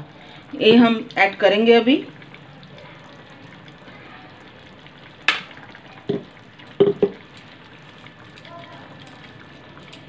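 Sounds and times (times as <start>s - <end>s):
chicken sizzling in a pan: 0.0s - 10.0s.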